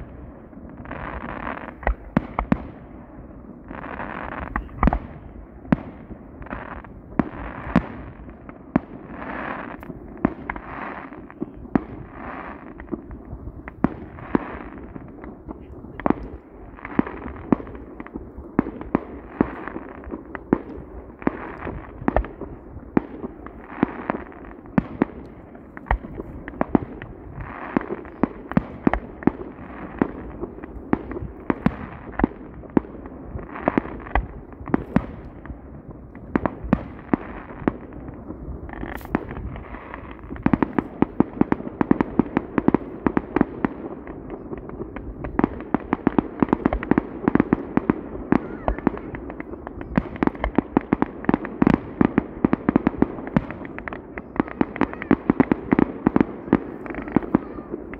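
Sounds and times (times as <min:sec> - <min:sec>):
firework bangs: 0:00.0 - 0:57.9
firework crackling: 0:00.0 - 0:57.9.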